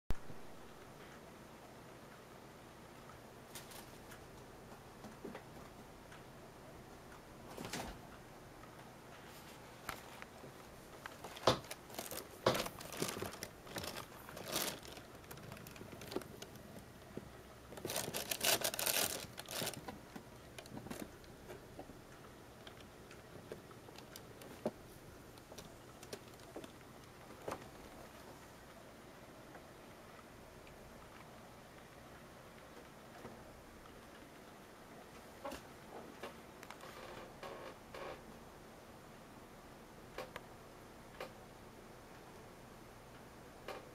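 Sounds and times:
plastic bags and cardboard crinkling: 0:11.0 - 0:16.8, 0:17.7 - 0:21.2.

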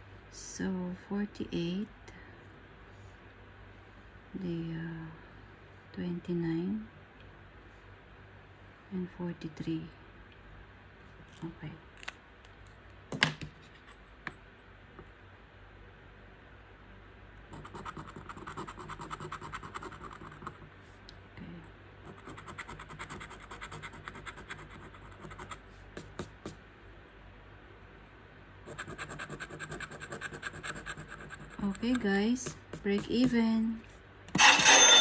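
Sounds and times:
scratch card being scraped: 0:28.7 - 0:33.4.

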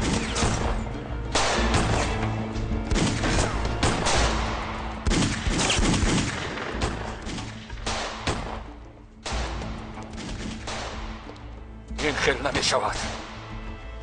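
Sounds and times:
pistol shots: 0:00.0 - 0:02.3, 0:02.9 - 0:11.4
background music: 0:00.0 - 0:14.0.

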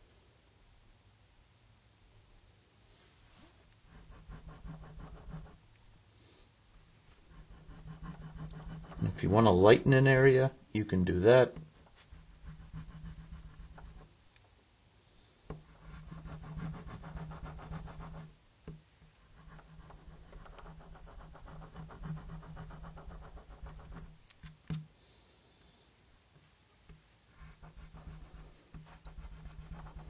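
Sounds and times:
pencil rubbing on paper: 0:03.4 - 0:05.6, 0:07.1 - 0:09.5, 0:11.6 - 0:14.1, 0:15.5 - 0:18.4, 0:19.2 - 0:24.6, 0:27.3 - 0:30.0.

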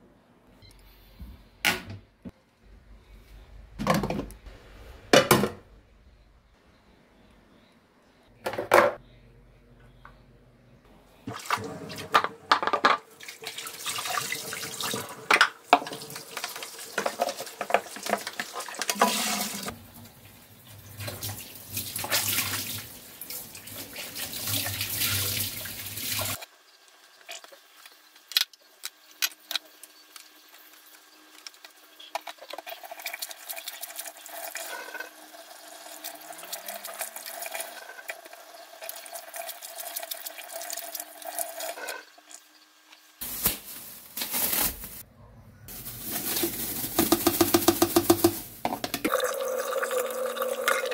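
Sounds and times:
dishes clicking and knocking: 0:12.2 - 0:13.0.

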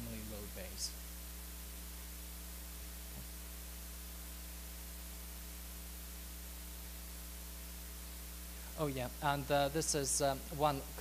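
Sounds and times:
electrical mains hum: 0:00.0 - 0:11.0
sound system hiss: 0:00.0 - 0:11.0.

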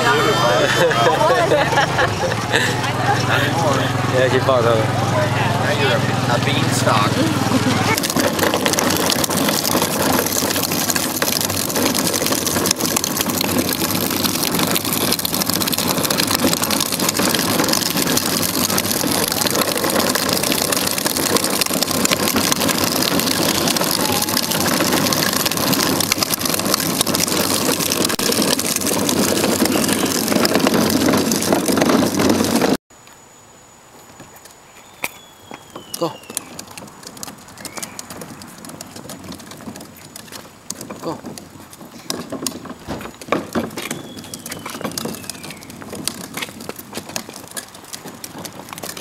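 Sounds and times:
faint outdoor sounds: 0:00.0 - 0:13.5, 0:32.9 - 0:49.0
plastic wheels rolling on concrete: 0:00.0 - 0:33.1, 0:33.9 - 0:49.0.

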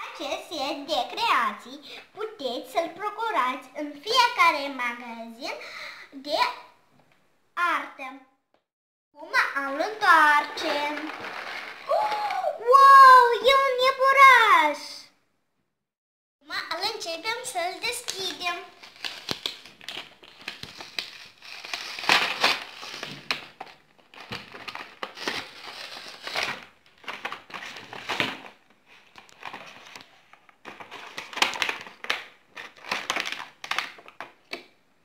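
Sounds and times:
plastic packaging crinkling: 0:09.6 - 0:12.5, 0:17.8 - 0:34.6.

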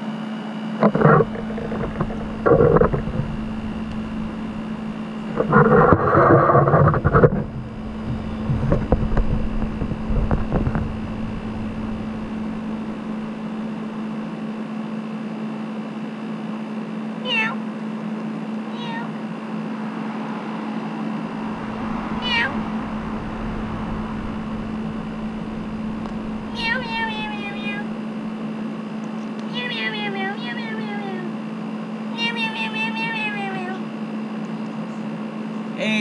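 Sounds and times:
steady low hum: 0:00.6 - 0:36.0
cat meowing: 0:17.2 - 0:17.7, 0:18.7 - 0:19.2, 0:21.6 - 0:28.4, 0:29.5 - 0:31.3, 0:32.1 - 0:33.9.

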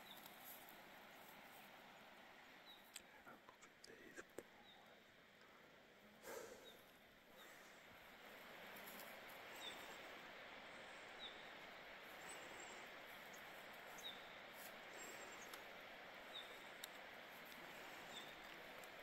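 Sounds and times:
soft hiss: 0:00.0 - 0:19.0
faint clicks: 0:02.8 - 0:04.5, 0:13.3 - 0:19.0.

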